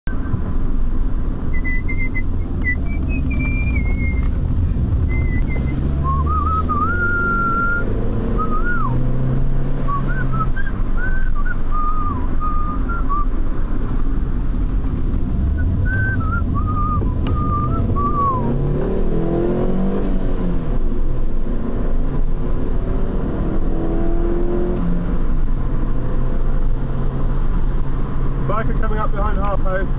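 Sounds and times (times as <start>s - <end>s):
car engine: 0.1s - 29.9s
road noise inside car: 0.1s - 29.9s
person whistling a tune: 1.6s - 4.3s, 5.1s - 9.0s, 9.9s - 13.3s, 15.6s - 18.6s.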